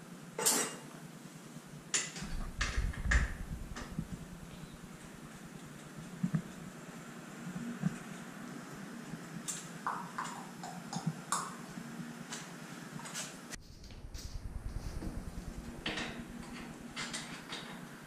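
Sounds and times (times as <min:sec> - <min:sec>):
rapid ticking: 0:02.2 - 0:05.6.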